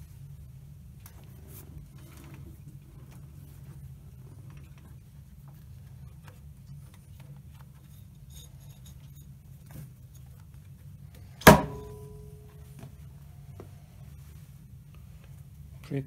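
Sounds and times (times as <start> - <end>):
low hum: 10.7 - 15.8
sharp metallic clank: 11.4 - 12.5.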